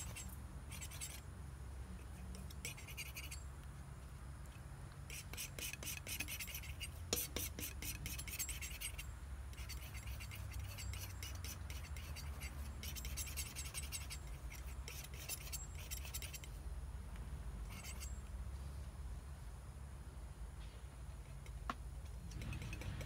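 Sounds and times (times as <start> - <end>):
palette knife scraping paint: 0.0 - 1.2, 2.0 - 3.4, 5.1 - 16.5, 17.7 - 18.2, 22.2 - 23.0.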